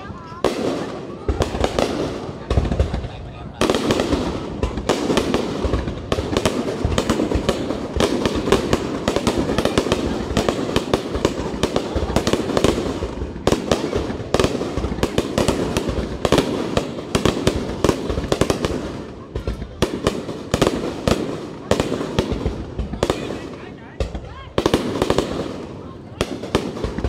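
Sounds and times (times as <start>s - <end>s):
fireworks bangs and crackles: 0.0s - 27.0s.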